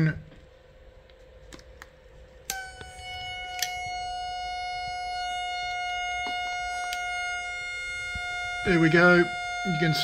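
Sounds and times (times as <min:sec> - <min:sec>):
radio test tone: 0:02.6 - 0:10.0.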